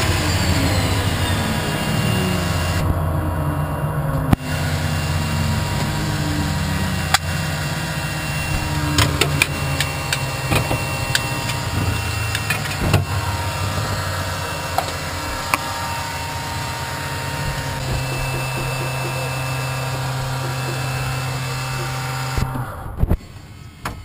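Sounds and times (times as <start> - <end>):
turboprop engine droning: 0.0 - 24.0
sharp clicks and knocks: 8.5 - 13.1, 14.7 - 23.2.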